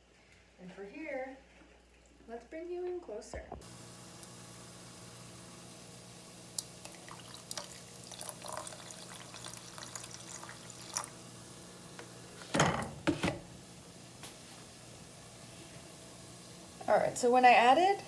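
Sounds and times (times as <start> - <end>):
liquid trickling and splashing: 6.6 - 11.2.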